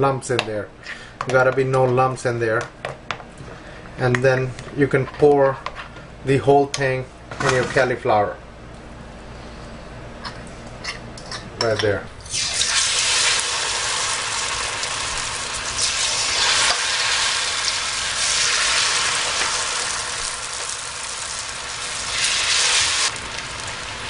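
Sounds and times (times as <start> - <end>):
battered food sizzling in oil: 12.3 - 24.0.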